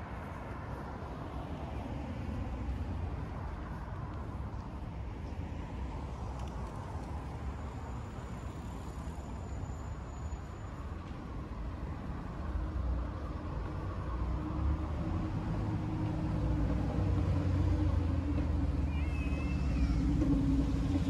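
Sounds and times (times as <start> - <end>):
low rumble of road traffic: 0.0 - 21.0
vehicle engine approaching: 14.5 - 21.0.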